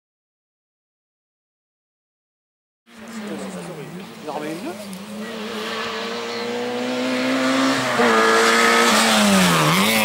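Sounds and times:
rally car engine at full speed: 2.9s - 10.0s.

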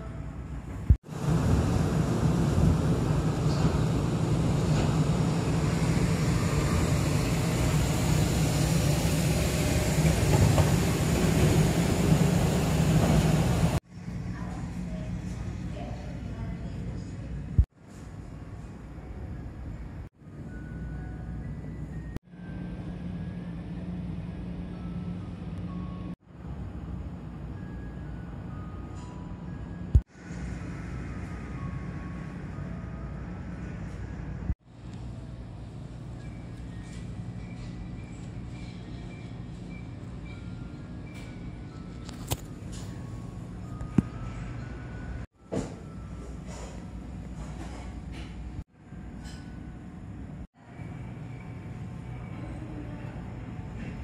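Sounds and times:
low background hum: 0.0s - 54.0s
low rumble and hum: 0.1s - 17.7s.

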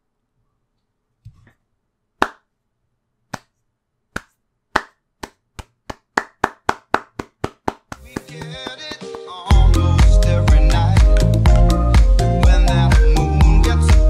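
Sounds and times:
hands clapping: 2.2s - 2.4s, 3.3s - 3.5s, 4.2s - 10.2s, 11.0s - 12.1s.

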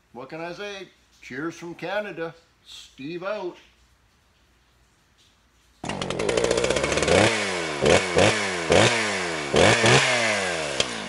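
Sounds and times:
small petrol engine revving: 5.8s - 11.0s.

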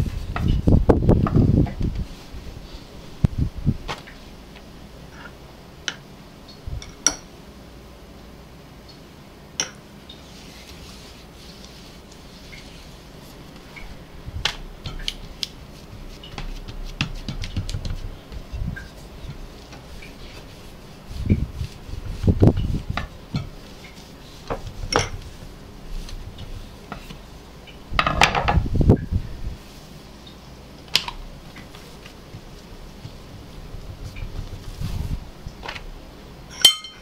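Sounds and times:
hands rubbing dough: 10.1s - 27.6s, 31.1s - 36.0s
rolling pin thudding on dough: 14.4s - 25.4s.

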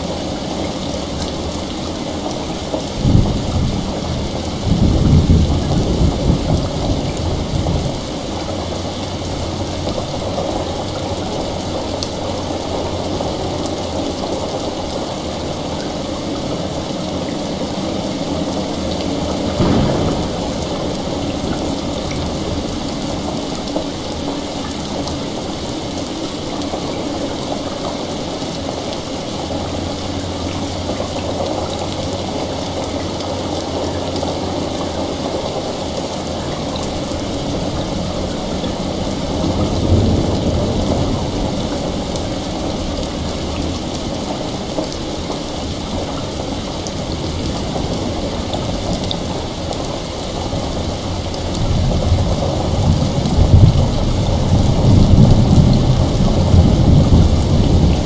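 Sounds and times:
heavy rain: 0.0s - 58.0s
thunder rumbling: 0.0s - 58.0s
thunder crack: 2.5s - 12.0s, 17.7s - 24.2s.

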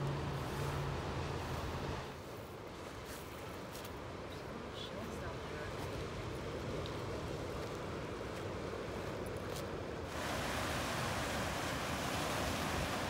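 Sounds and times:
surf washing over rocks: 4.1s - 13.0s.

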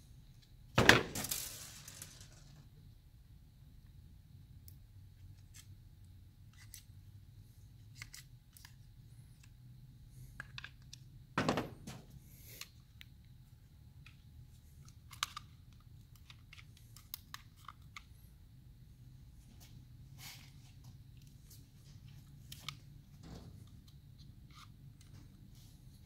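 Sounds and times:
plastic parts clicking and tapping: 10.3s - 13.1s, 14.0s - 18.1s, 22.2s - 25.4s.

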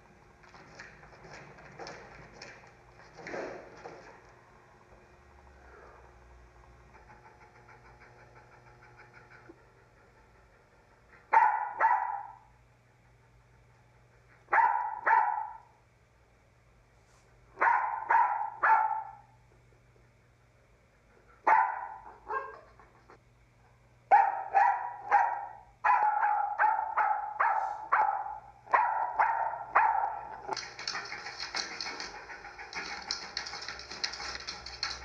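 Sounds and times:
dog barking: 11.3s - 12.5s, 14.5s - 15.8s, 17.6s - 19.4s, 21.4s - 22.8s, 24.1s - 31.0s.

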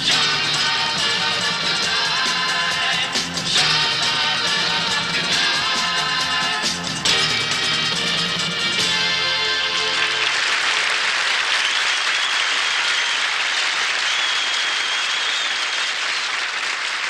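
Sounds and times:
band music: 0.0s - 10.8s
audience applauding: 9.4s - 17.0s.

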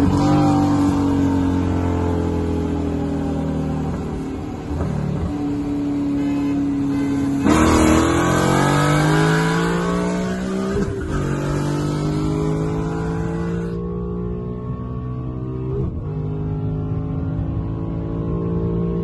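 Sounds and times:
car engine accelerating: 6.8s - 19.0s.

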